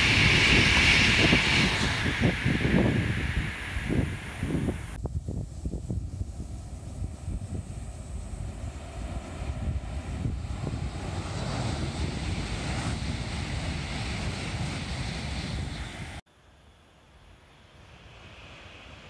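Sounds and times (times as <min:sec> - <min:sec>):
high-speed train passing: 0:00.0 - 0:05.0, 0:06.2 - 0:16.2
wind rumble on microphone: 0:00.0 - 0:16.2.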